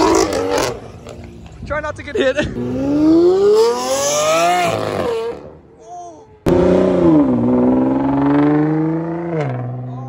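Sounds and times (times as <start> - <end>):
car engine accelerating hard: 6.5 - 10.0.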